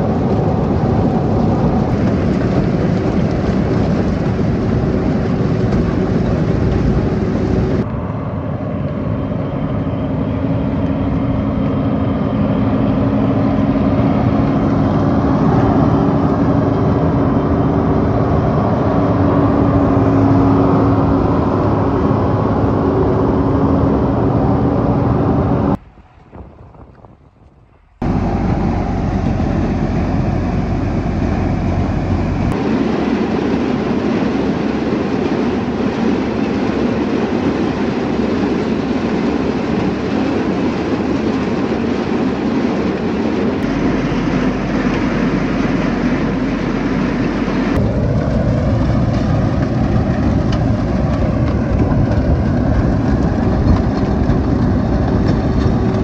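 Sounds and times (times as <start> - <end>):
diesel tractor running: 0.0 - 56.0
corn picker running: 28.0 - 56.0.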